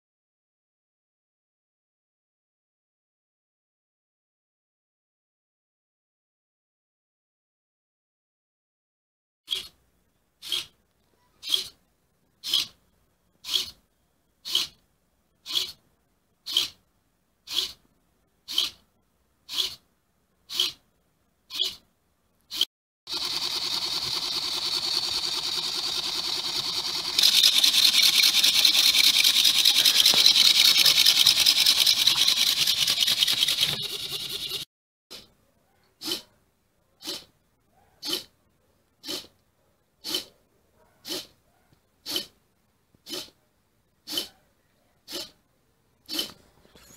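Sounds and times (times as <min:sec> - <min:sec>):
servo motors whirring: 0:22.5 - 0:34.6
fast rattle: 0:23.1 - 0:34.7.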